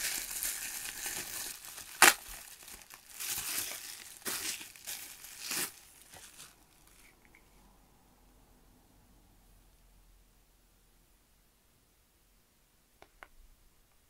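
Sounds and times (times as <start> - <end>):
plastic bags crinkling: 0.0 - 7.3.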